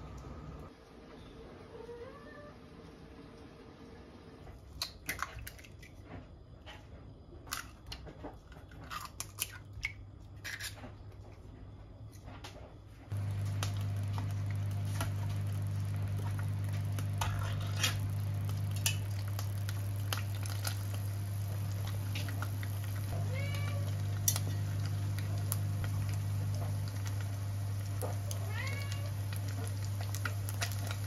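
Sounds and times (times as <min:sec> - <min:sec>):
cat meowing: 0:01.7 - 0:02.6, 0:23.1 - 0:24.0, 0:28.3 - 0:29.2
steady low hum: 0:13.1 - 0:31.0.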